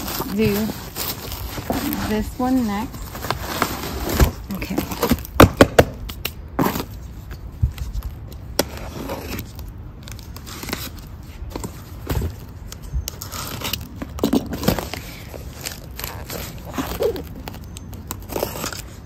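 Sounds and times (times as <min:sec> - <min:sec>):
knife slitting packing tape: 0:13.1 - 0:19.0.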